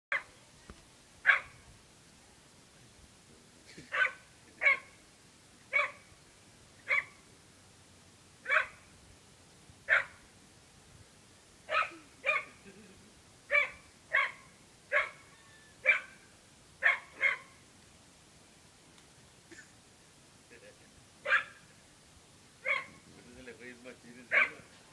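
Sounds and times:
dog barking: 0.1s - 0.3s, 1.2s - 1.6s, 3.9s - 5.0s, 5.7s - 6.0s, 6.9s - 7.2s, 8.4s - 8.8s, 9.9s - 10.2s, 11.7s - 12.6s, 13.5s - 16.2s, 16.8s - 17.6s, 21.2s - 21.6s, 22.6s - 23.0s, 24.3s - 24.7s.

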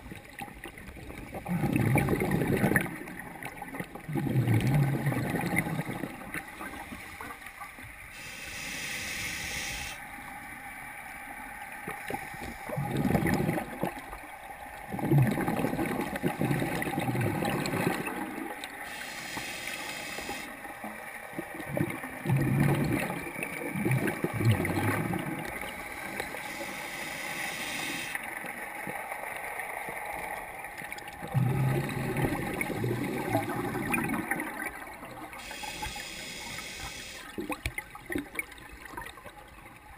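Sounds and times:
gurgling exhaled bubbles: 0.0s - 7.1s, 11.8s - 19.5s, 21.3s - 26.8s, 31.1s - 39.3s
regulator inhale hiss: 8.1s - 10.0s, 18.8s - 20.5s, 25.8s - 28.2s, 35.4s - 37.3s.

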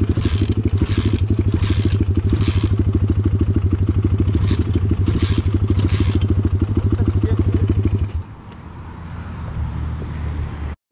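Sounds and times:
kick starter clatter: 0.0s - 2.9s, 4.2s - 6.4s
pit bike engine idling: 0.0s - 8.3s.

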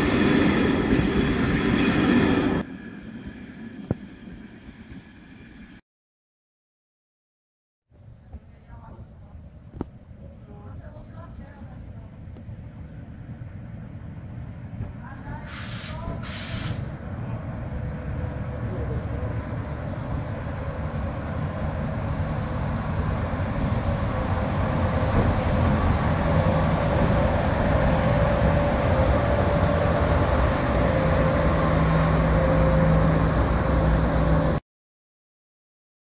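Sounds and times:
electric locomotive humming: 9.1s - 34.6s.

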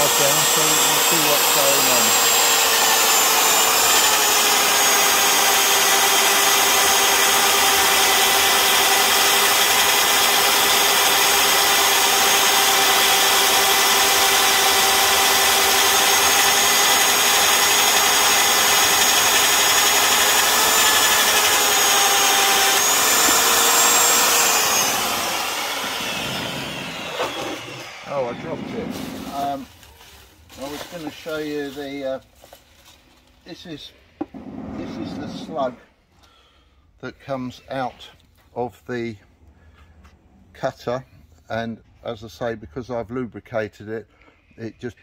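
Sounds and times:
magnetic drill motor whining: 0.0s - 29.6s.

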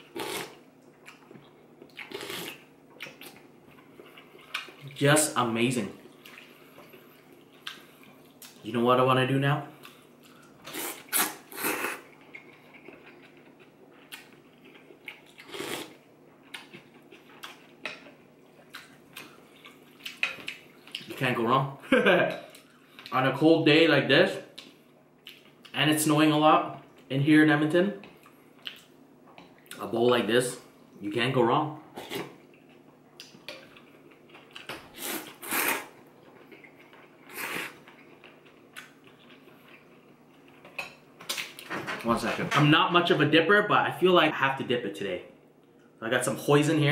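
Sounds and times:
person slurping noodles: 10.7s - 12.1s, 15.5s - 16.0s, 35.0s - 36.0s, 37.3s - 37.8s
noisy noodle slurps: 35.0s - 35.9s.

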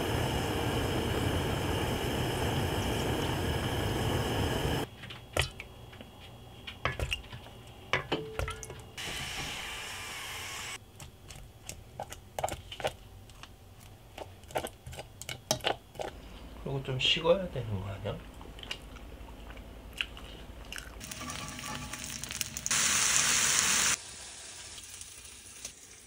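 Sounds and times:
water boiling: 0.0s - 5.6s, 21.0s - 26.0s
dumplings sizzling on griddle: 21.0s - 26.0s.

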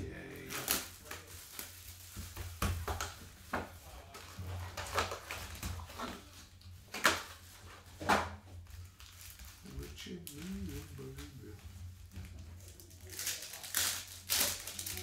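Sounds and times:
plastic wrap crinkling: 0.0s - 15.0s.

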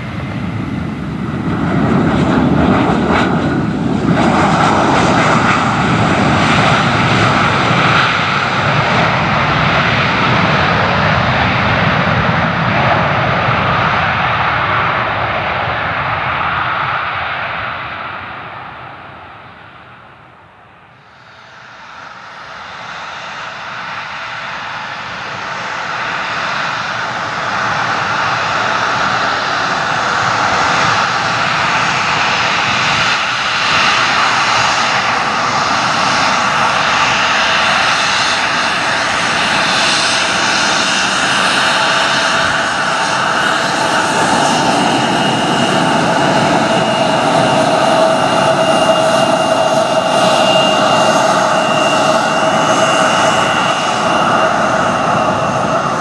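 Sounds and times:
high turbine whine: 0.0s - 56.0s
jet engines roaring: 0.0s - 56.0s.

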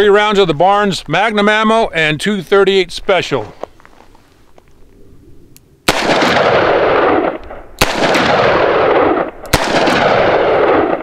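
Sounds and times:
revolver gunshots with echo: 5.9s - 11.0s.

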